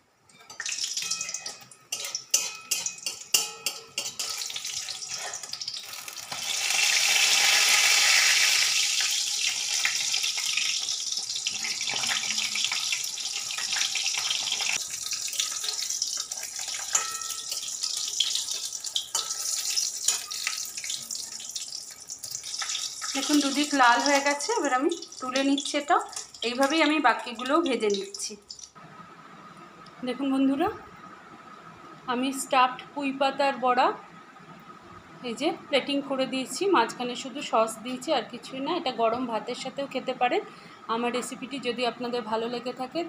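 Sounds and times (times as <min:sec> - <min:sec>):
fritter deep-frying in oil: 0:00.4 - 0:28.8.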